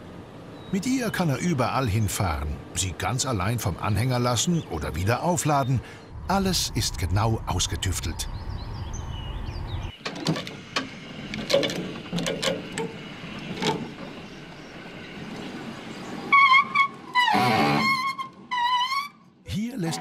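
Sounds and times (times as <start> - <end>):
low vehicle rumble: 0.0 - 18.6
hand winch clanking: 10.0 - 14.2.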